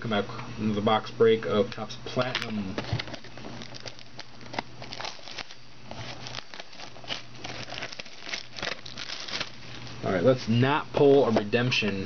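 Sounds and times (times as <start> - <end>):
plastic shrink-wrap tearing: 2.9 - 9.9.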